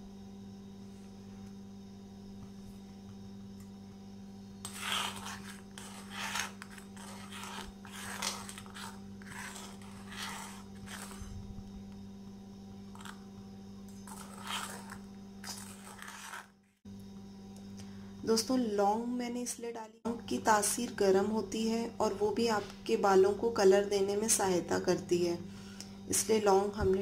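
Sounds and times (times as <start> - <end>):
metal spoon scraping steel pot: 4.6 - 11.3, 13.0 - 13.2, 13.9 - 16.5.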